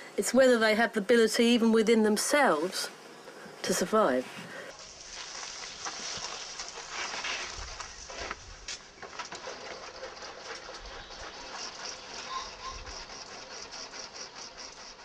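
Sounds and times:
steady high hiss: 0:00.0 - 0:09.1
birds calling: 0:08.9 - 0:15.0
pigeon cooing: 0:12.2 - 0:12.9.

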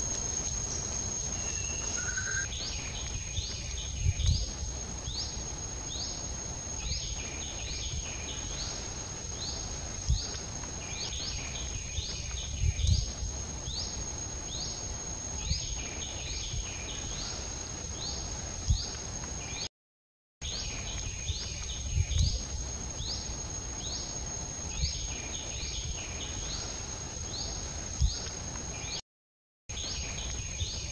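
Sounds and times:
high-pitched insect drone: 0:00.0 - 0:19.6
short rising chirp: 0:00.7 - 0:02.5.

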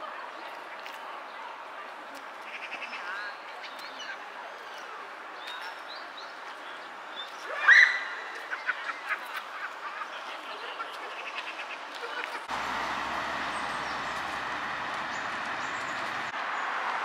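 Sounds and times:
waterbirds calling: 0:00.2 - 0:16.8
road traffic passing: 0:12.4 - 0:17.0.

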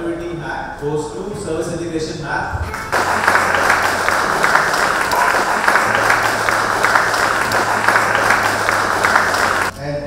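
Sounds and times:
audience applauding: 0:02.7 - 0:09.7.

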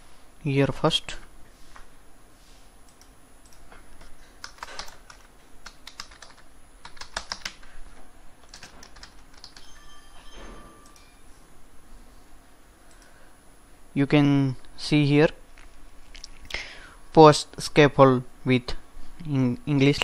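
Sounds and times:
computer keyboard typing: 0:02.9 - 0:07.7, 0:08.4 - 0:09.7.

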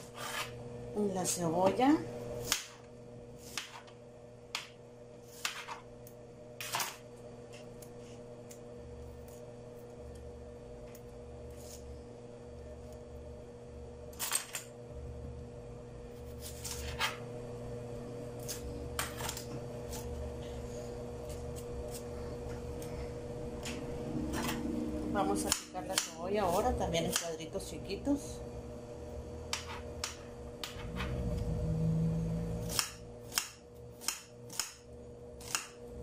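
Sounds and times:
steady low hum: 0:00.0 - 0:36.0
knife and onion skin clicks: 0:32.7 - 0:34.8, 0:35.4 - 0:35.8.

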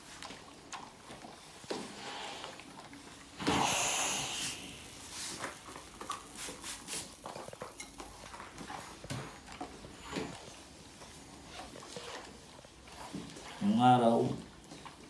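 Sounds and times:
steam iron hiss: 0:03.4 - 0:04.9.

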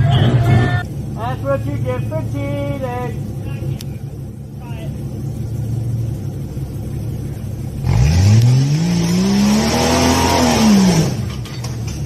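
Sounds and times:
suv engine revving: 0:03.1 - 0:12.0.

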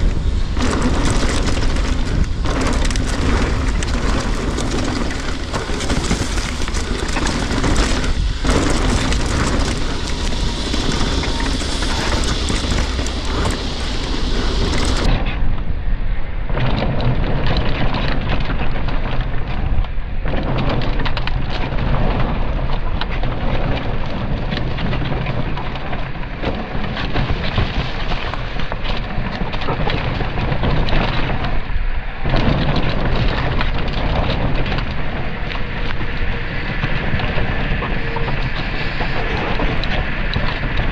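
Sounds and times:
tyres rumbling and rattling: 0:00.0 - 0:15.3
wind rush on microphone: 0:00.0 - 0:40.9.

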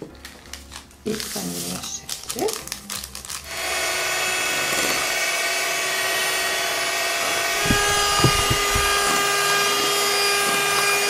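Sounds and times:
electric hand mixer running: 0:07.5 - 0:09.2
brief knocks: 0:07.6 - 0:09.1.

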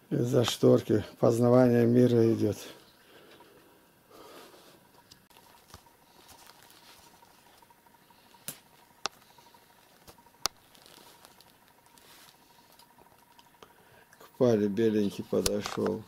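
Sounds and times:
small ticks: 0:04.9 - 0:14.3
sharp clicks: 0:15.4 - 0:16.0.

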